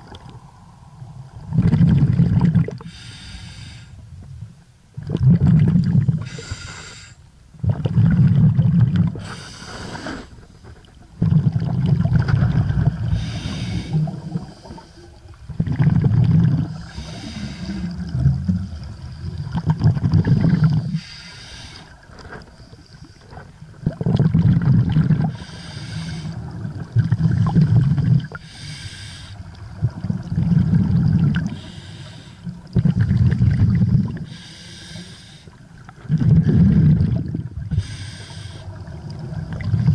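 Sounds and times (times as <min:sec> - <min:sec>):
exhaled air bubbling: 0:00.0 - 0:06.8, 0:07.5 - 0:39.9
regulator inhale hiss: 0:02.8 - 0:04.0, 0:06.2 - 0:07.2, 0:09.2 - 0:10.6, 0:13.1 - 0:15.2, 0:16.7 - 0:18.1, 0:20.6 - 0:22.0, 0:25.3 - 0:26.4, 0:28.3 - 0:29.5, 0:31.5 - 0:32.6, 0:34.2 - 0:35.6, 0:37.7 - 0:38.8.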